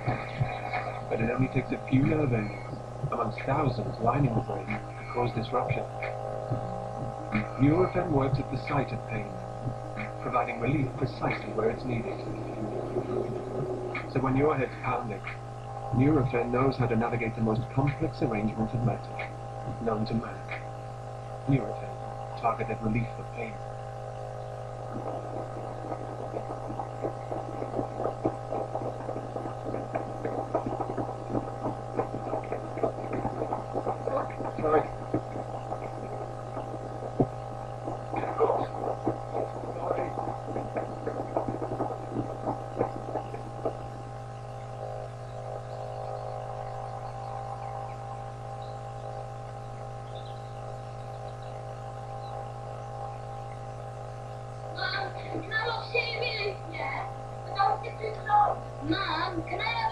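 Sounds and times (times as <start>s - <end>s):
electrical mains hum: 0.0s - 59.9s
faint clicks and rustles: 23.4s - 55.5s.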